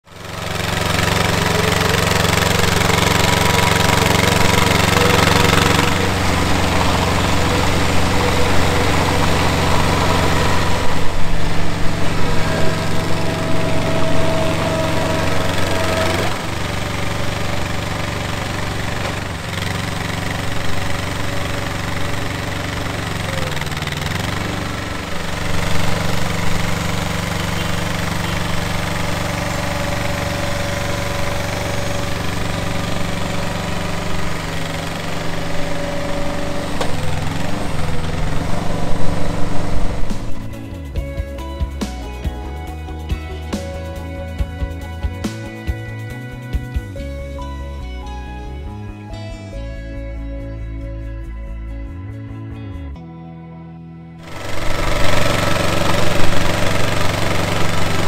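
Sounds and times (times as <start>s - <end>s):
drilling rig engine running: 0.0s - 49.1s, 54.2s - 58.0s.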